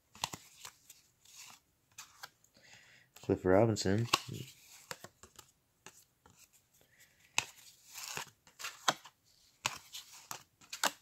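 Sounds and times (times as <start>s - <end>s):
cards flipped with snaps: 0.1s - 2.4s, 4.0s - 6.5s, 7.2s - 11.0s.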